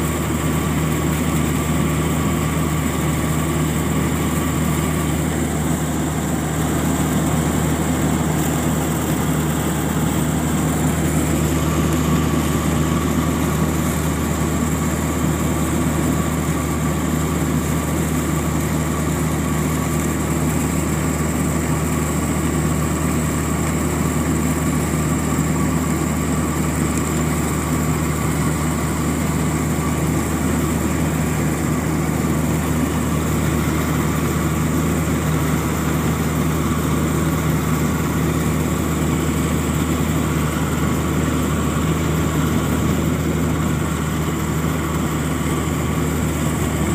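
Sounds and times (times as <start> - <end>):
combine harvester engine drone: 0.0 - 46.9
steady high whine: 0.0 - 46.9.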